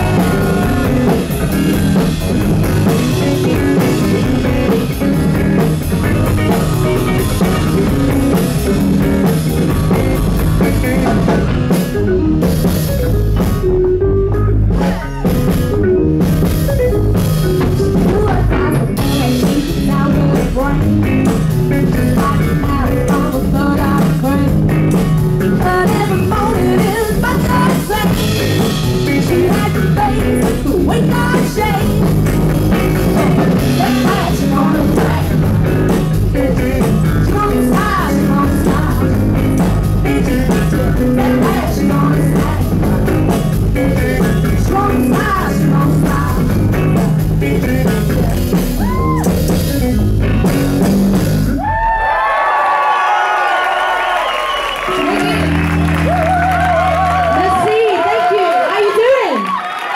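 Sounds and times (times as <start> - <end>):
electric guitar: 0.0 - 52.5, 53.4 - 59.9
drum kit: 0.0 - 57.9
bass guitar: 0.0 - 59.3
woman singing lead vocal: 2.7 - 4.9, 18.0 - 32.0, 33.0 - 49.2.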